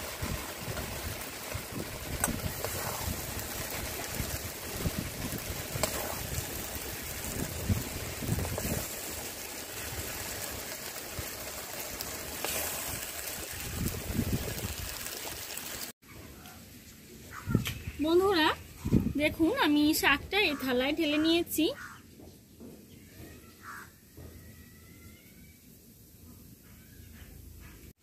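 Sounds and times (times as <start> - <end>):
food sizzling and bubbling in a pan: 0.0 - 16.0.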